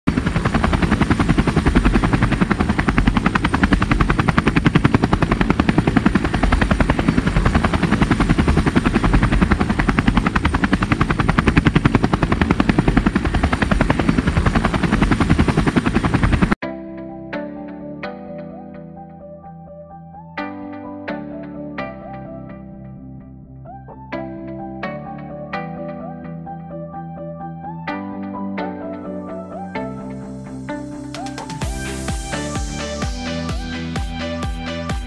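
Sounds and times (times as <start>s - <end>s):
helicopter rotor chopping: 0.0s - 16.6s, 31.2s - 35.0s.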